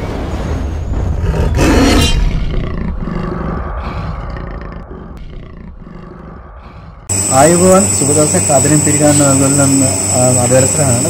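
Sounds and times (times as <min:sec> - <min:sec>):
big cat roaring: 0:01.1 - 0:07.1.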